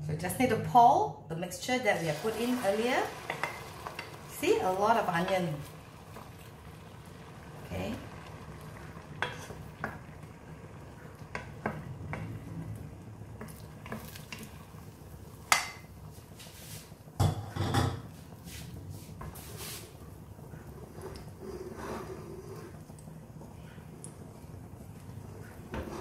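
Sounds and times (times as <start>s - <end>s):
wooden spatula scraping a wok: 18.1s - 22.9s, 25.3s - 26.0s.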